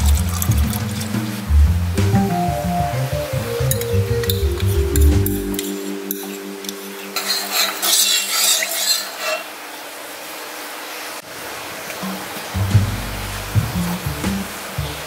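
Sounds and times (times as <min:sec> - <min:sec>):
steady hiss: 0:00.0 - 0:15.0
spoon scraping in pot: 0:05.6 - 0:09.6.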